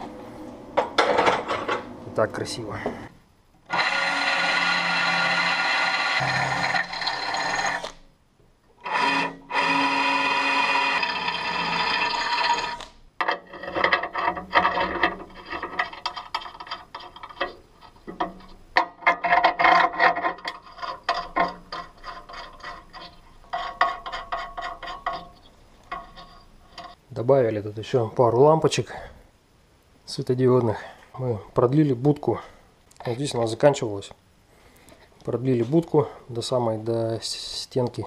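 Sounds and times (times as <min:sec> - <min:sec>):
cordless drill whining: 0:03.7 - 0:08.0, 0:08.8 - 0:12.9
metal clicks and scrapes: 0:10.4 - 0:27.0.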